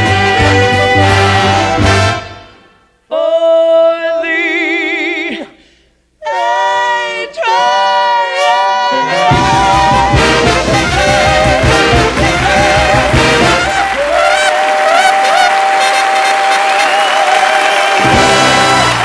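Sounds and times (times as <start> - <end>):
trombone: 0.0 - 2.6, 8.4 - 17.0, 18.0 - 19.0
swing band playing: 0.0 - 2.7, 6.2 - 19.0.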